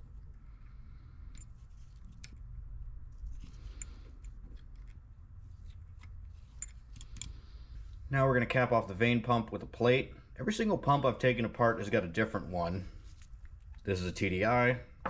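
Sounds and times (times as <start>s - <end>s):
low steady hum: 0.0s - 15.0s
small metallic clicks: 5.6s - 7.4s.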